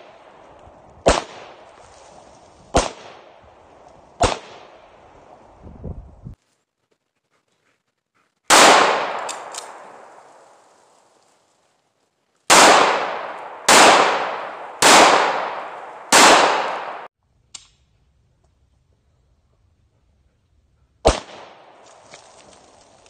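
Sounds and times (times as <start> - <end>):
pistol shots with echo: 1.0 - 1.6, 2.7 - 3.3, 4.2 - 4.8, 8.5 - 10.1, 12.5 - 17.1, 21.0 - 21.7.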